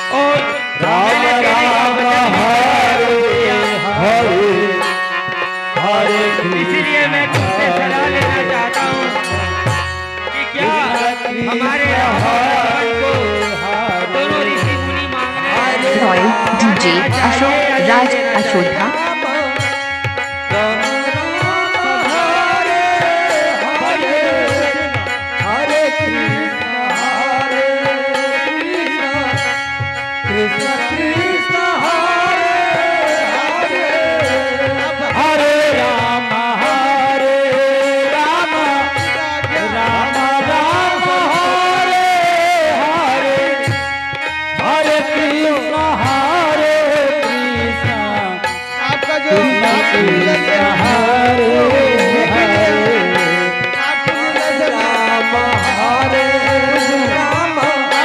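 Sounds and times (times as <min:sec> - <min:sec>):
drum beat: 0:16.0 - 0:19.1
melody bending in pitch: 0:16.0 - 0:19.2.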